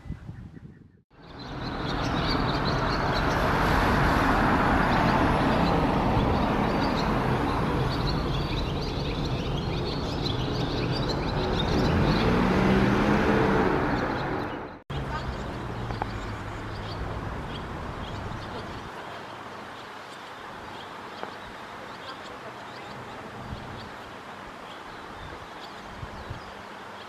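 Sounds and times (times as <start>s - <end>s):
swallow twittering: 0.0s - 3.6s, 4.8s - 18.9s
road traffic rushing: 1.1s - 19.7s.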